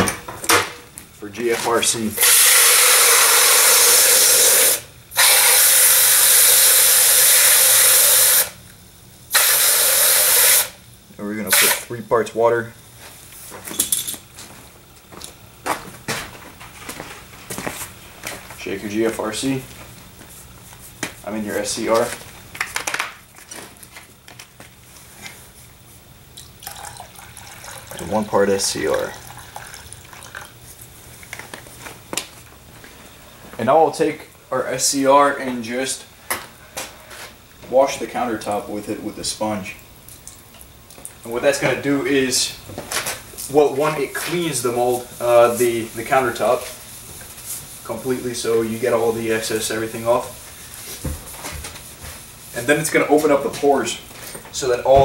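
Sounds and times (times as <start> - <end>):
hose spray hissing into plastic cup: 1.7 - 8.6, 9.3 - 10.8, 11.4 - 11.9, 43.6 - 51.1
liquid dripping: 26.4 - 31.4, 39.8 - 41.2.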